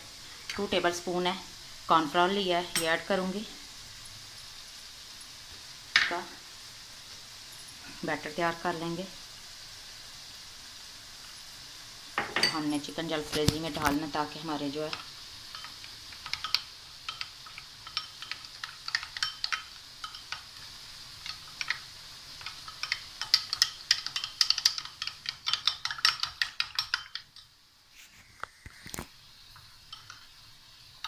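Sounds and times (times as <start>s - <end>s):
metal spoon clinking ceramic bowl: 15.5s - 20.4s.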